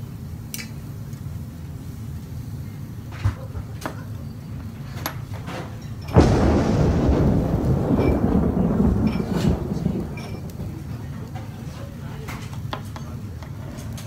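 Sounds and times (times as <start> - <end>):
steady low hum: 0.0 - 14.0
loud rushing noise: 6.2 - 11.8.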